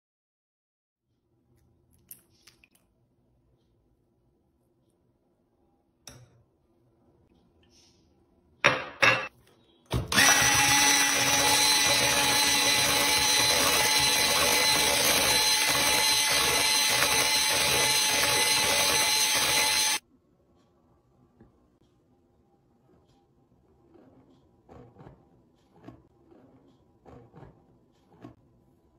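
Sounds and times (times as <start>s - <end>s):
electric hand mixer whining: 10.1s - 20.0s.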